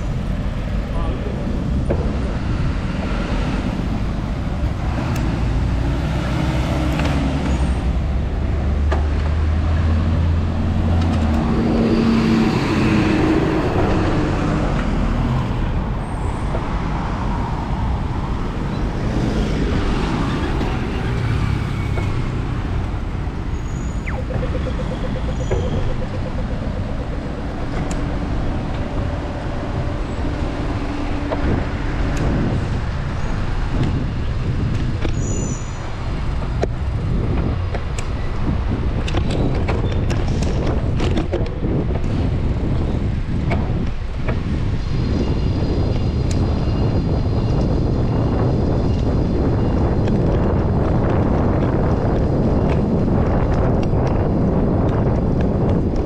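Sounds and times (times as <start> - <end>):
road traffic passing: 0.0 - 56.0
deep engine hum: 22.2 - 34.2.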